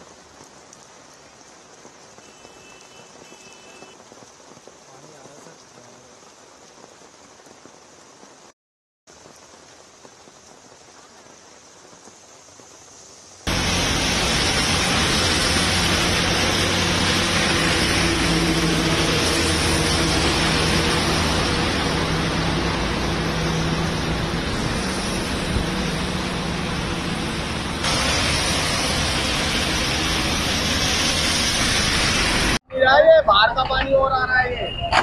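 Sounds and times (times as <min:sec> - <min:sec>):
heavy rain on road: 0:00.0 - 0:34.5
traffic engines humming: 0:02.0 - 0:04.0, 0:13.5 - 0:35.0.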